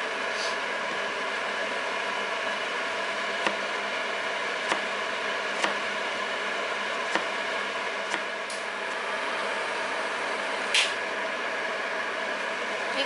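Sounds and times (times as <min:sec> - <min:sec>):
knife chopping on cutting board: 0:03.4 - 0:03.7, 0:04.6 - 0:04.9, 0:05.5 - 0:05.9, 0:07.1 - 0:07.4, 0:08.1 - 0:08.3.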